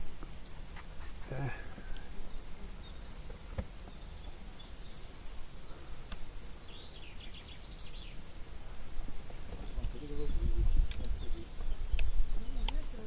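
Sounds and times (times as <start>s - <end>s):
small bird chirping and trilling: 2.3s - 8.2s, 9.6s - 13.0s
wind rumble on microphone: 9.6s - 13.0s.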